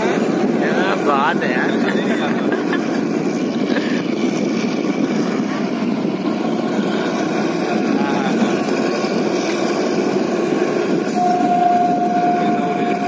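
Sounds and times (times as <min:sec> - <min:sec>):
train rumbling: 0:00.0 - 0:13.0
train horn long note: 0:11.1 - 0:13.0.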